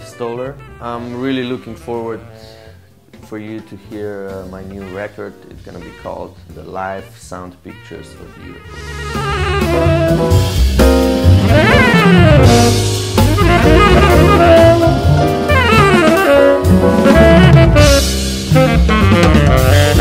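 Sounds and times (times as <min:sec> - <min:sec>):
bass notes: 0:00.0 - 0:20.0
drums: 0:00.0 - 0:20.0
saxophone runs: 0:11.4 - 0:20.0.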